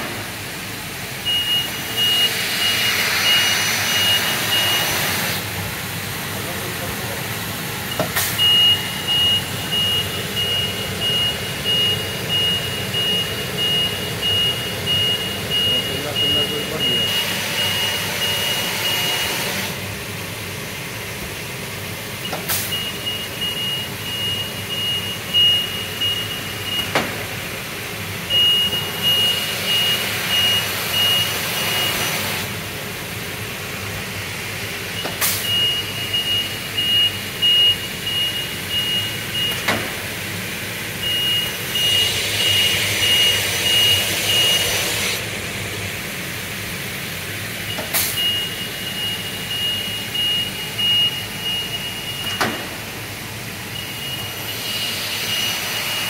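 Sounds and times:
high electronic beep: 1.3 - 4.9, 7.9 - 19.2, 35.0 - 39.7, 41.0 - 44.7, 47.7 - 52.5, 53.7 - 56.0.

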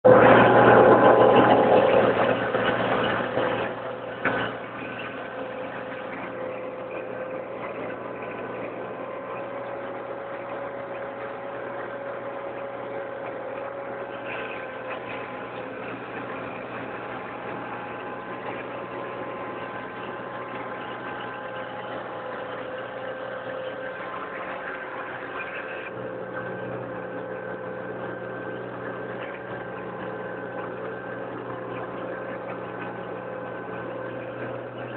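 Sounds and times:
tractor engine running: 0.0 - 34.9.

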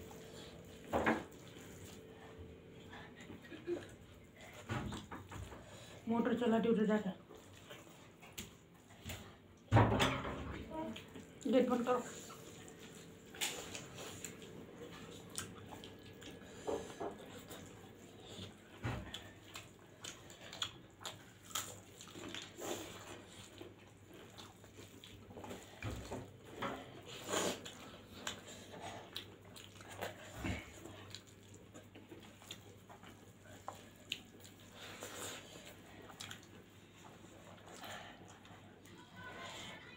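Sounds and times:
mouth smacking and chewing: 12.3 - 16.6, 18.4 - 25.6, 27.3 - 38.5.

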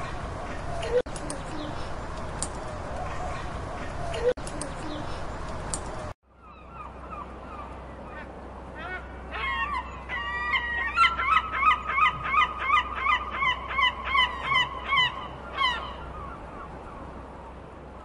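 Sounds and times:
gull calling: 6.4 - 17.0.

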